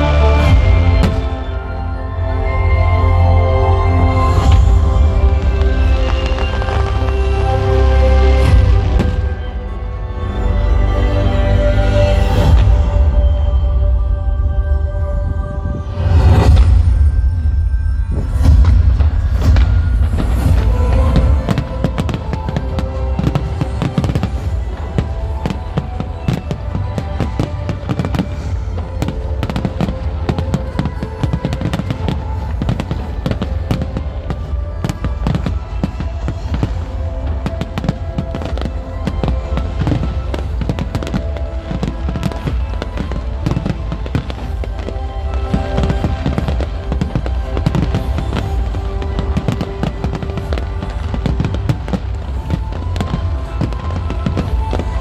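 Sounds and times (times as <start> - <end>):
music playing: 0.0 - 55.0
fireworks cracking: 4.3 - 9.4, 18.1 - 55.0.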